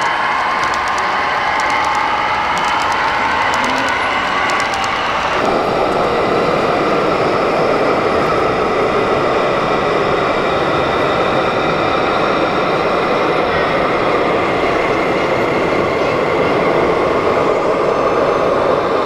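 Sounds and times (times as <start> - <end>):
toy truck engine running: 0.0 - 5.3
model train clicking: 0.0 - 6.0.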